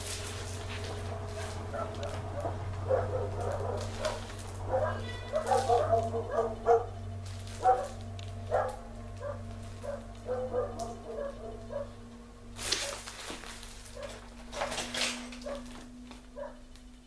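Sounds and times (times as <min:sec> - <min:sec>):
steady low hum: 0:00.0 - 0:17.0
dog whining and yipping: 0:01.7 - 0:06.9, 0:08.5 - 0:12.0.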